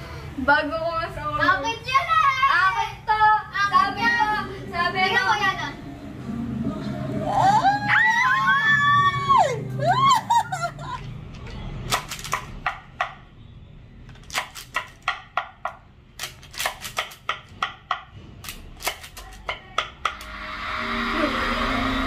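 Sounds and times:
voice sliding down in pitch: 20.3s - 22.0s.

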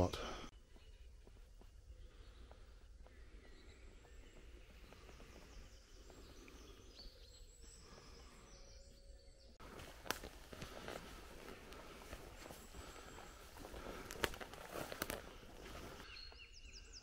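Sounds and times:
distant birds chirping: 0.0s - 17.0s
footsteps crunching on path: 0.6s - 7.0s, 9.6s - 16.5s.

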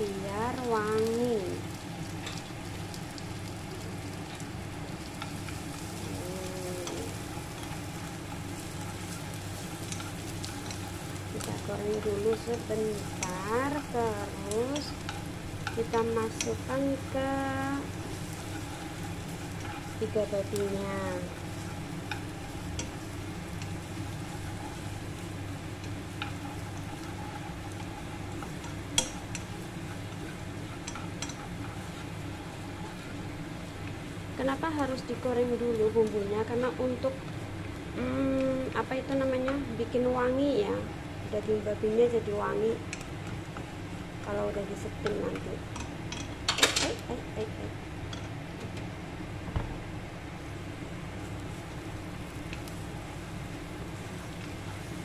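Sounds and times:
garlic sizzling in hot oil: 0.0s - 55.0s
chopsticks tapping a pan: 6.8s - 33.1s, 38.4s - 39.7s, 42.9s - 43.7s, 44.8s - 48.8s.

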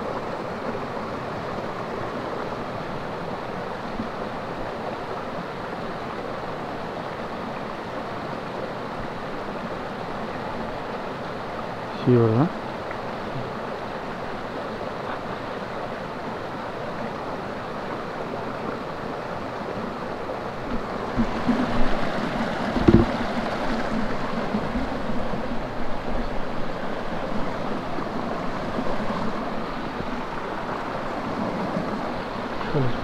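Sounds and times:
stream water rushing: 0.0s - 33.0s
low thumps: 22.7s - 23.4s.

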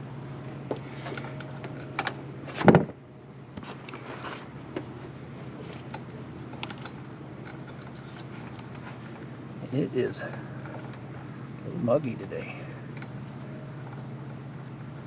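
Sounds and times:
steady low hum: 0.0s - 15.0s
cable ties clicking and rustling: 5.6s - 9.0s.

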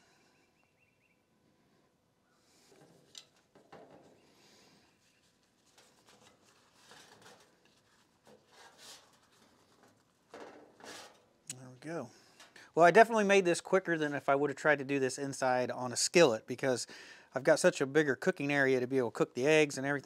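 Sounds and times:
tortilla rustling while folded: 4.1s - 11.2s.

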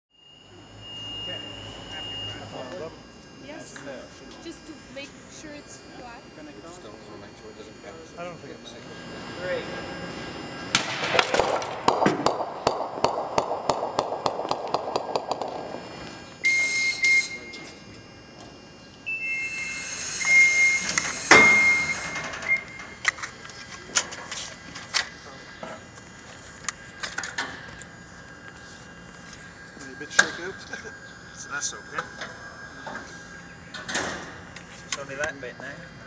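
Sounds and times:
bowling ball bouncing and rolling: 10.8s - 16.4s.

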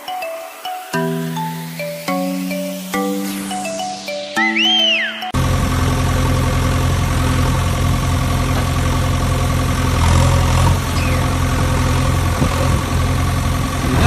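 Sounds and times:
heavy engine idling: 5.4s - 14.0s.

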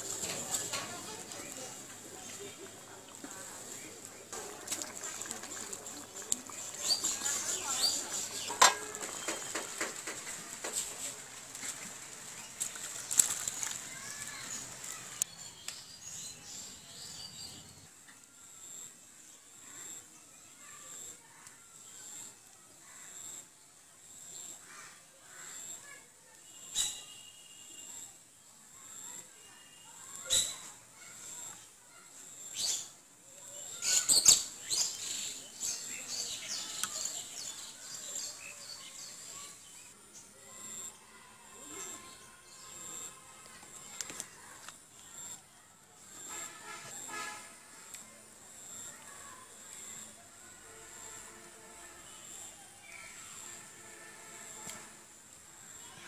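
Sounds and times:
small birds chirping: 0.2s - 11.2s.

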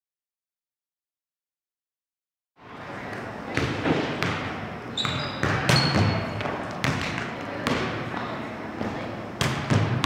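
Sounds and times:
volleyball slaps and thumps: 3.5s - 8.0s, 8.8s - 10.0s
brief high squeak: 5.0s - 6.2s.

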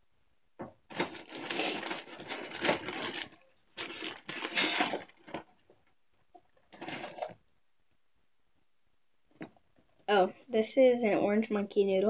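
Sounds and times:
plastic toys rustling and clattering: 0.9s - 7.6s.

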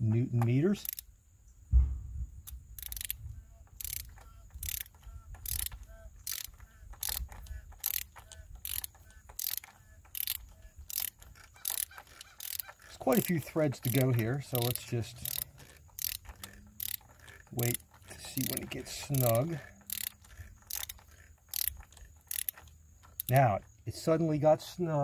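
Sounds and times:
torque wrench ratchet clicking: 0.8s - 1.1s, 2.4s - 23.6s
single knock: 1.7s - 2.2s.

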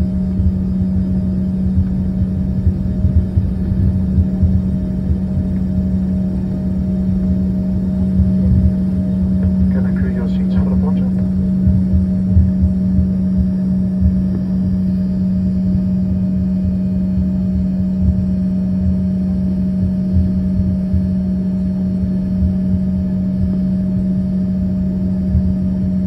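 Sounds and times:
jet engines humming: 0.0s - 19.4s
low rumble of airliner rolling: 0.0s - 26.0s.

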